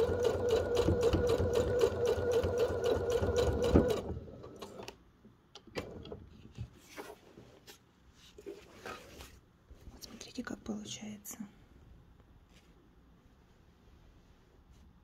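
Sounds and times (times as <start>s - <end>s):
sewing machine running: 0.0s - 4.8s.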